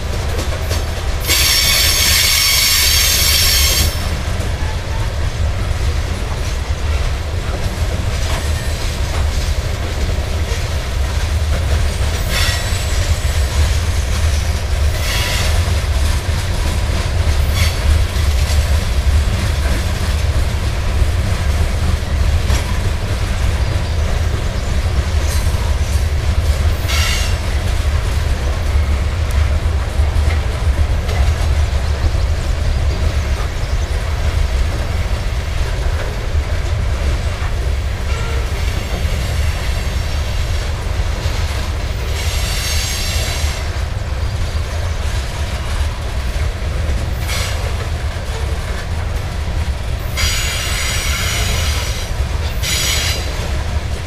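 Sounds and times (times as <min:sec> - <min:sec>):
train wheels rumbling on rail: 0:00.0 - 0:54.0
metallic wheel squeal: 0:01.3 - 0:04.0.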